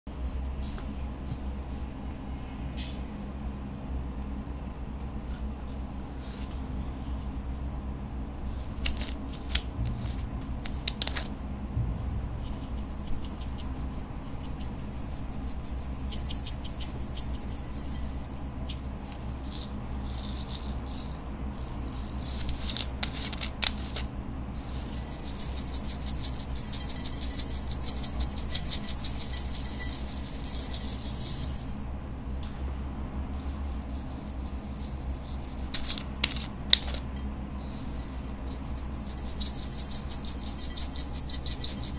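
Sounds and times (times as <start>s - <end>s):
sequins rattling into glass bowl: 12.7s - 18.8s, 24.6s - 31.8s, 33.4s - 41.9s.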